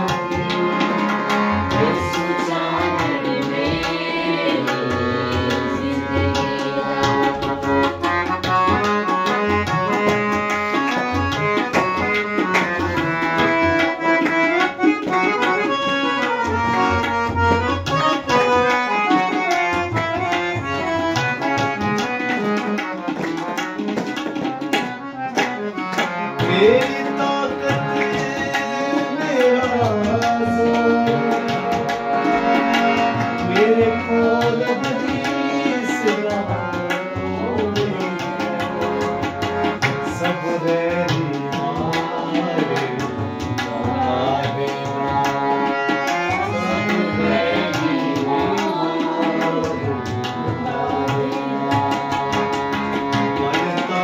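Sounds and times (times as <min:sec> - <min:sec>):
man singing: 0:00.0 - 0:07.4, 0:15.3 - 0:20.9, 0:26.4 - 0:32.0, 0:33.2 - 0:54.0
harmonium melody: 0:00.0 - 0:54.0
tabla rhythm: 0:00.0 - 0:54.0.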